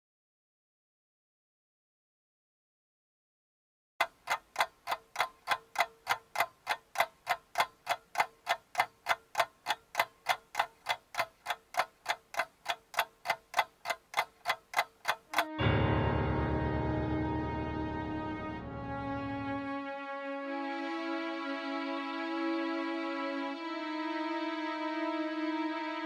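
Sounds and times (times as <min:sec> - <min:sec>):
clock ticking: 0:04.0 - 0:15.8.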